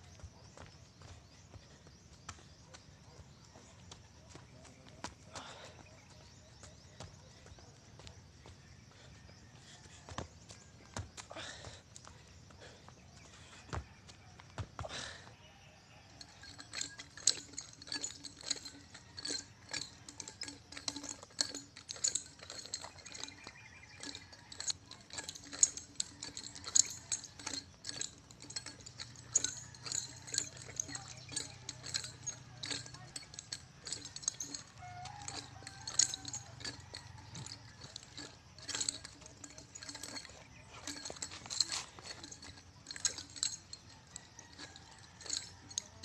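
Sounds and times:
nunchaku clacking and rattling: 16.1 - 46.0.

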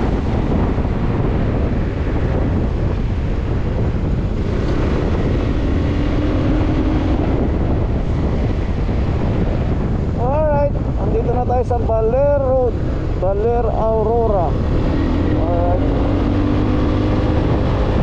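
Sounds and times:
motorcycle engine: 0.0 - 10.2, 14.1 - 18.0
road noise: 0.0 - 18.0
wind buffeting microphone: 0.0 - 18.0.

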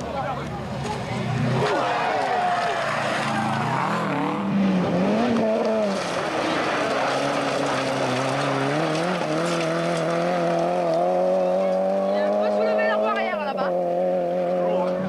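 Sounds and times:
rally car engines revving: 0.0 - 15.0.

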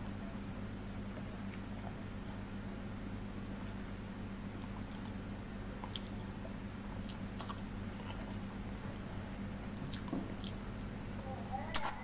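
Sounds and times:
steady low hum: 0.0 - 12.0
wet chewing clicks: 5.8 - 8.5, 9.4 - 11.0.

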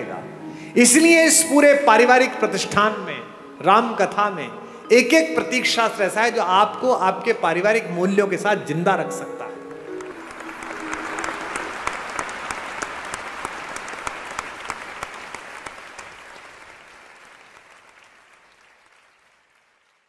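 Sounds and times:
audience clapping: 9.7 - 20.0.

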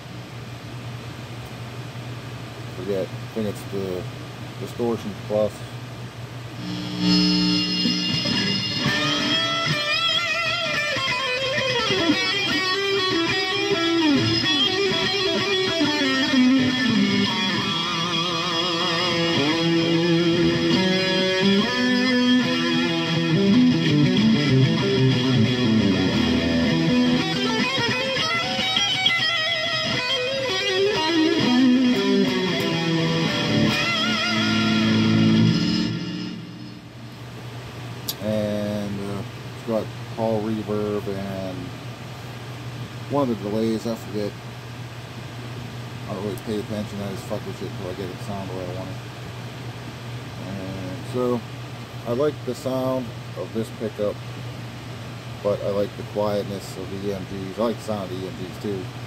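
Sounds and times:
distorted electric guitar lead: 6.6 - 37.0.

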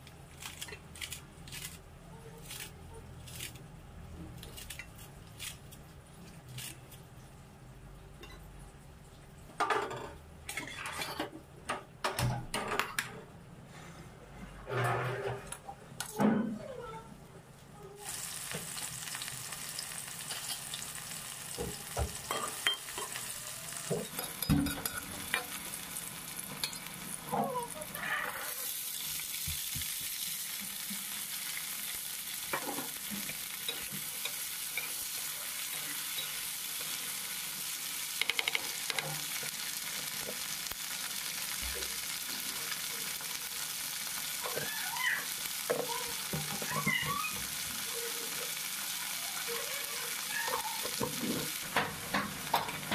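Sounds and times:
onions sizzling in hot oil: 18.0 - 52.9.

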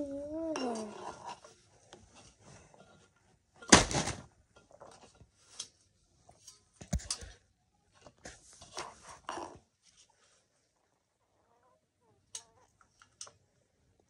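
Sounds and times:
person humming: 0.0 - 1.0.

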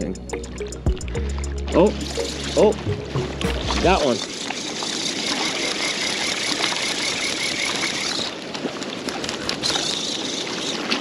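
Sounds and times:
wind: 0.0 - 11.0
water rushing at rocks: 1.0 - 11.0
fishing reel clicking: 4.0 - 8.4.

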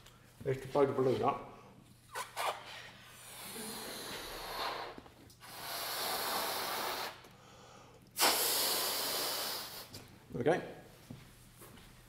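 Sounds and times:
man blowing up a balloon: 2.1 - 7.3, 8.2 - 10.0.

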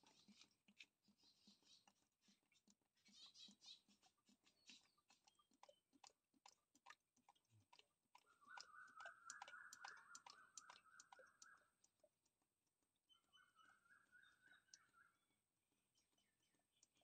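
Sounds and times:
faint ticks: 4.4 - 12.4.

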